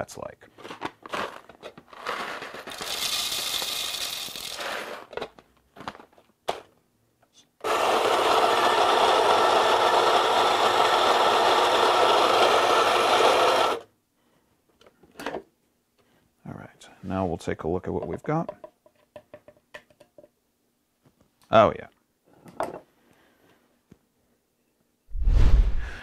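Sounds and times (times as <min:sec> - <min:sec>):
coffee grinder grinding: 0:01.0 - 0:05.2, 0:07.6 - 0:13.8
coffee beans rattling into hopper: 0:01.1 - 0:05.1.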